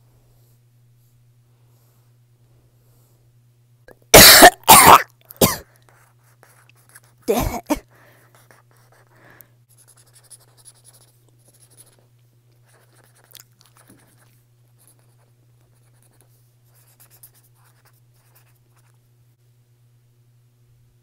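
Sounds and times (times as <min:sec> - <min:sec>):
marker scribbling on paper: 0:06.0 - 0:07.4, 0:09.7 - 0:12.0, 0:12.6 - 0:19.0.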